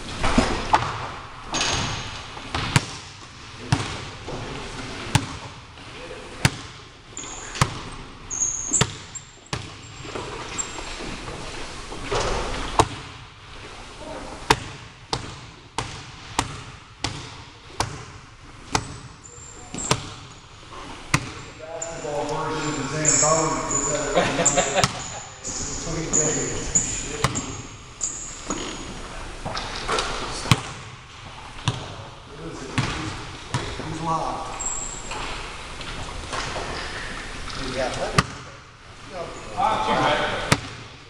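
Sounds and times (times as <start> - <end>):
basketball bouncing on wood floor: 0.2 - 4.5, 5.1 - 5.6, 6.4 - 10.2, 12.1 - 13.2, 14.5 - 21.6, 26.7 - 28.8, 30.4 - 31.0, 31.6 - 32.1, 32.8 - 34.0, 40.5 - 40.9
sneakers squeaking: 0.2 - 5.6, 6.4 - 13.2, 14.1 - 31.0, 32.7 - 38.4.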